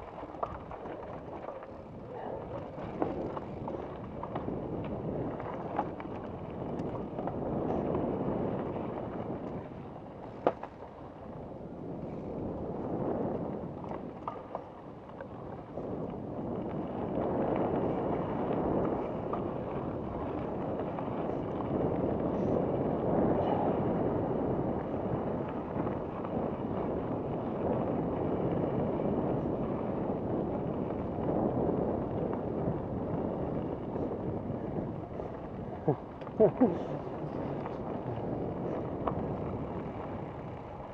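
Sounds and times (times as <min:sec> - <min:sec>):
bike clicks and knocks: 0:00.0 - 0:01.9, 0:02.5 - 0:08.0, 0:09.0 - 0:11.2, 0:13.0 - 0:16.0
bike tyre noise on dirt: 0:00.0 - 0:40.9
wind on microphone: 0:00.0 - 0:40.9.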